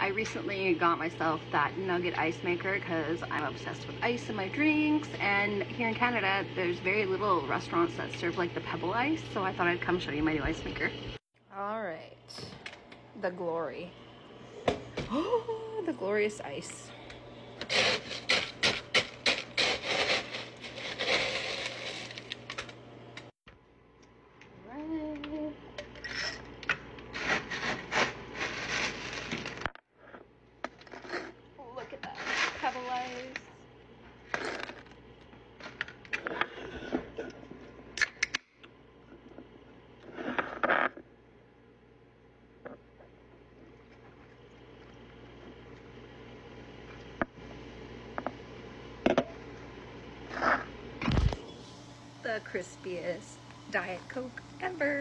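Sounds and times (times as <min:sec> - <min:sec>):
scoop crunching through ice: 0:17.6 - 0:22.5, 0:27.1 - 0:29.7.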